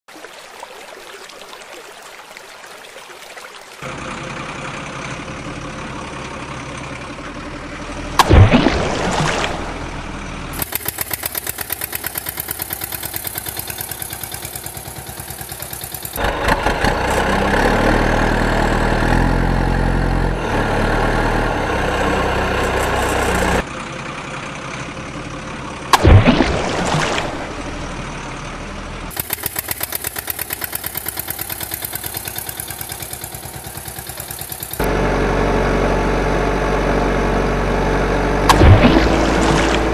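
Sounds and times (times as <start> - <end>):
truck engine sound effects: 3.8 - 39.9
sudden loud burst: 38.5 - 39.9.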